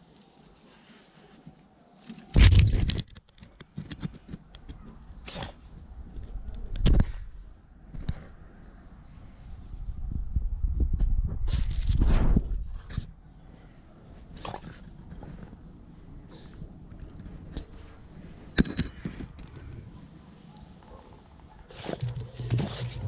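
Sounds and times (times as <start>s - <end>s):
dog snuffling: 20.8s - 23.0s.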